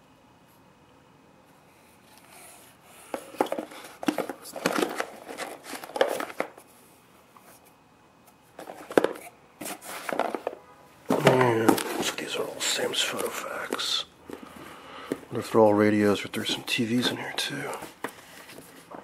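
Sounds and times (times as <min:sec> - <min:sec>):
cardboard and cable rustling: 0:03.0 - 0:06.7, 0:08.5 - 0:15.5, 0:16.4 - 0:19.0.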